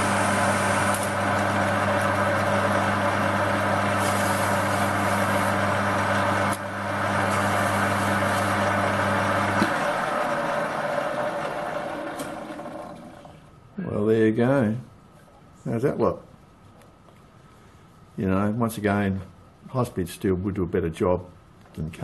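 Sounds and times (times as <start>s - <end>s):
electric motor hum: 0.0s - 13.4s
lathe spindle whirring: 0.0s - 13.4s.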